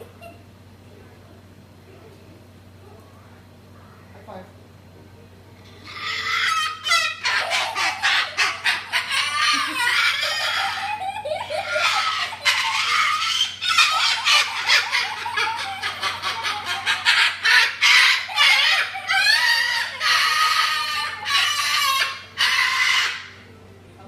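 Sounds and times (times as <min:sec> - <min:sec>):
cockatoo screeching: 0:05.8 - 0:23.5.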